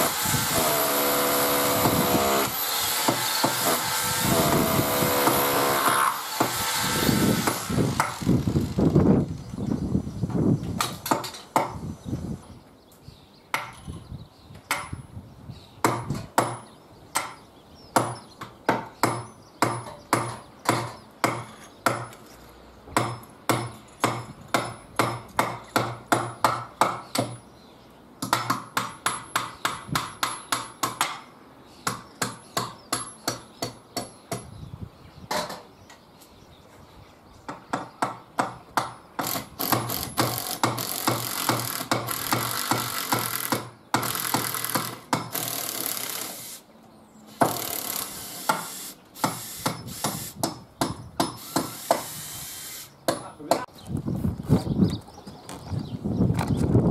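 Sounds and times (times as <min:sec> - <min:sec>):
cordless drill drilling into timber: 0:00.0 - 0:09.5, 0:39.2 - 0:46.6, 0:47.3 - 0:50.4, 0:51.4 - 0:52.9.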